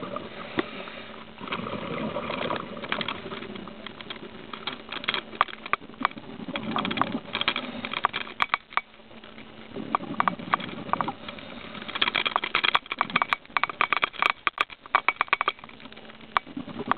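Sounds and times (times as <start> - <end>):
faint steady hum: 0.0 - 16.9
underwater exhaled bubbles rumbling: 1.4 - 4.5.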